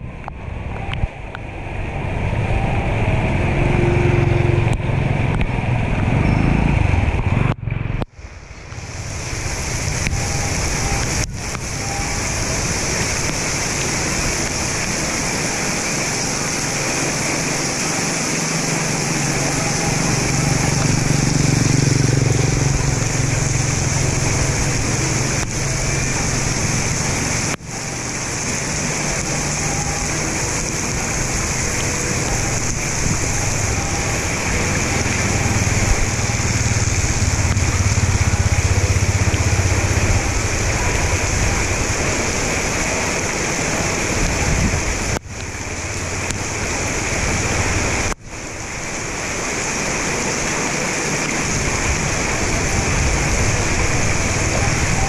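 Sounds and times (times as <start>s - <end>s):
floodwater running into culvert: 0.1s - 55.0s
low rumble: 29.4s - 42.7s.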